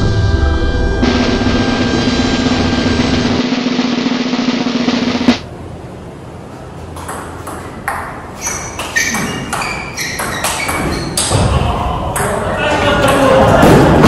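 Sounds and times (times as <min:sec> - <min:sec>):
ping pong ball hitting bats: 0:07.0 - 0:11.5.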